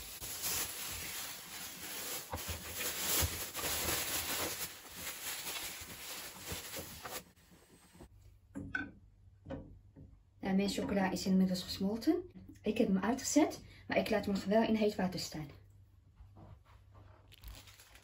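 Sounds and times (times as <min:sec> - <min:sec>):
plastic bag rustling and crinkling: 0:00.0 - 0:07.4, 0:17.2 - 0:18.0.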